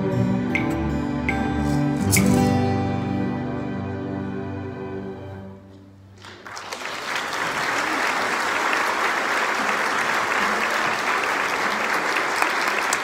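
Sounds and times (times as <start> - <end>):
music: 0.0 - 6.2
audience applause: 6.2 - 13.0.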